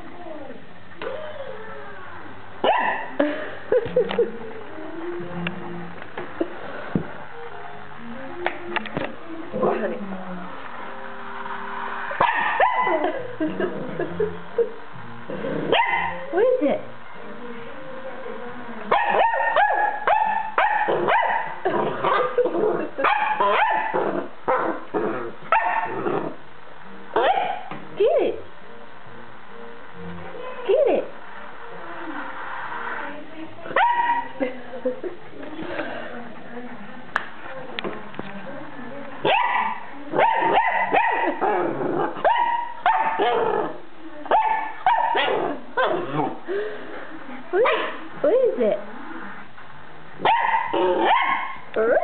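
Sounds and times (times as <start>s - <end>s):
puppy barking: 2.6s - 3.1s, 12.2s - 13.1s, 15.7s - 16.2s, 18.9s - 24.8s, 25.5s - 26.0s, 27.2s - 27.7s, 33.8s - 34.3s, 39.2s - 41.5s, 42.2s - 43.6s, 44.3s - 46.4s, 47.6s - 48.0s, 50.2s - 51.7s.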